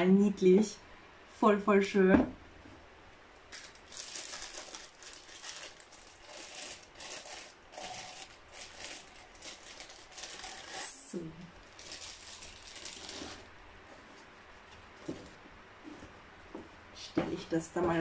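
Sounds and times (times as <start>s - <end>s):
plastic packaging crinkling: 3.4s - 15.4s.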